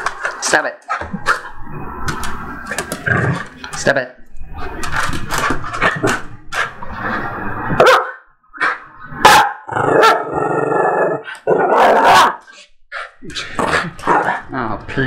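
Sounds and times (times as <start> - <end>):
dog growling: 0.9 - 3.7, 8.6 - 14.5
small dog barking: 7.8 - 8.2, 9.2 - 10.2, 11.8 - 12.4.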